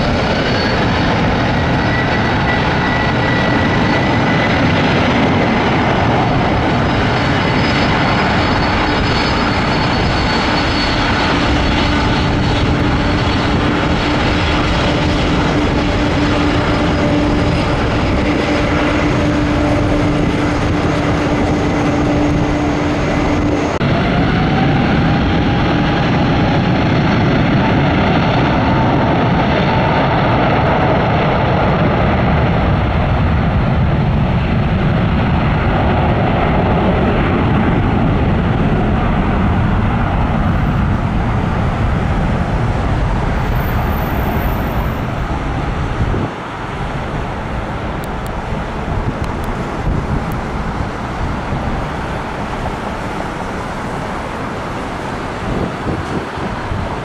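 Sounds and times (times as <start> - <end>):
airliner take-off rush: 0.0 - 57.0
jet engine low hum: 0.0 - 57.0
jet engines spooling up: 0.0 - 57.0.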